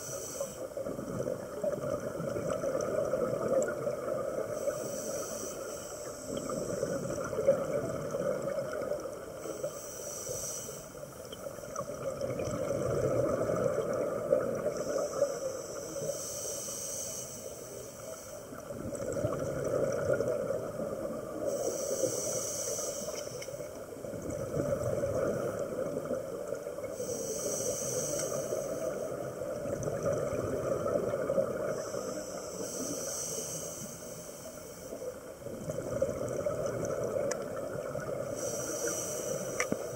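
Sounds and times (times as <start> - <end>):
regulator hissing inhale: 0.0 - 0.8, 4.5 - 7.2, 9.4 - 11.6, 14.6 - 18.6, 21.4 - 23.8, 26.8 - 29.5, 31.6 - 35.2, 38.1 - 39.9
gurgle of exhaled bubbles: 0.8 - 4.6, 6.3 - 9.4, 11.6 - 14.9, 18.6 - 21.5, 23.9 - 26.9, 29.1 - 31.8, 35.4 - 38.4.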